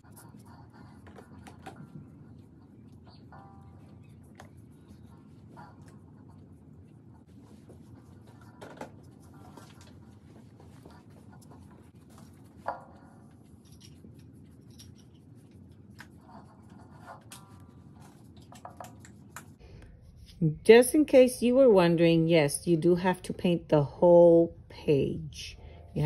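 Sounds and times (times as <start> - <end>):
paintbrush strokes on paper: 0.0 - 18.5
low room hum: 0.0 - 26.0.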